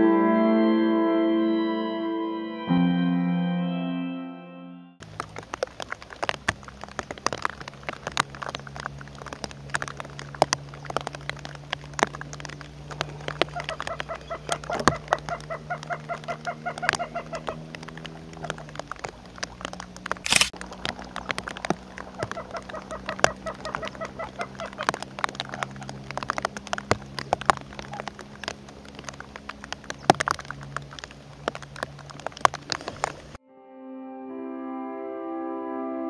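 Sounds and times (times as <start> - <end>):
sharp clicks: 5.0 - 33.4
waterbirds calling rapidly: 5.0 - 33.4.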